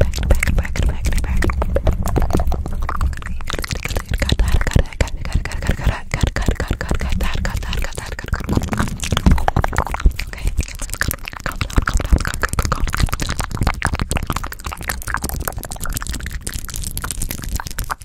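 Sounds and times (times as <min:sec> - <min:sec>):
wet mouth clicks and pops: 0:00.0 - 0:18.0.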